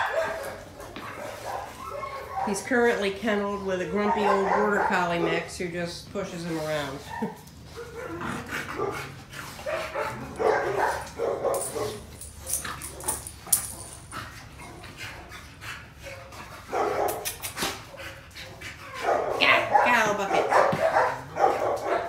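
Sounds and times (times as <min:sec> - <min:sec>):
dog barking: 0:00.0 - 0:02.6, 0:04.0 - 0:05.5, 0:09.6 - 0:12.0, 0:16.7 - 0:17.3, 0:19.0 - 0:22.0.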